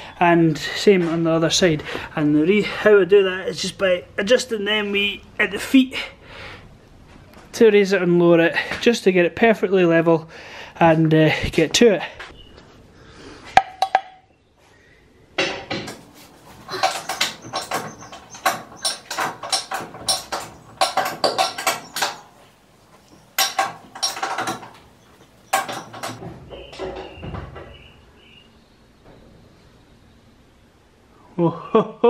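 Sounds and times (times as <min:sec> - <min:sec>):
metal clanking and knocking: 0:13.6 - 0:14.3, 0:15.4 - 0:27.9.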